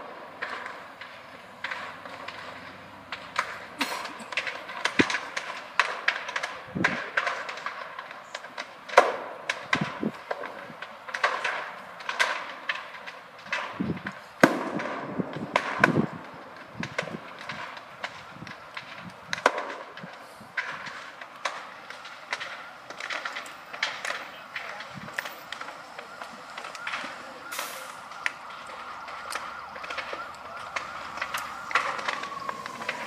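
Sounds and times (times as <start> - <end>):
explosions popping and banging: 8.9 - 27.2.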